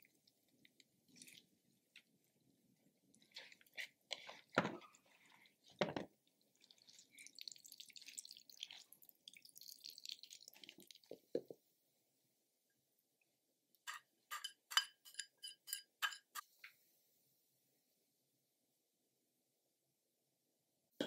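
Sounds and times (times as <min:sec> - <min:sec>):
liquid dripping and trickling: 0:05.3 - 0:11.2.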